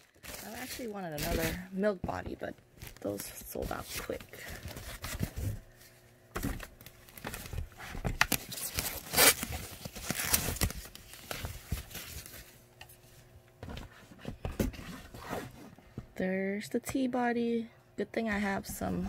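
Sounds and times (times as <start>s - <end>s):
foam packing wrap crinkling: 0.0s - 1.8s, 6.6s - 12.6s
wrap tearing rustles: 8.3s - 12.2s.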